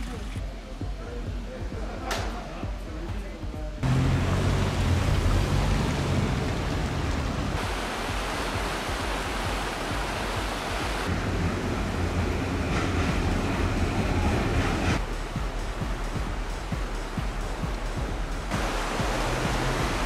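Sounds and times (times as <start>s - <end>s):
river rushing over stones: 3.8s - 11.1s, 15.0s - 20.0s.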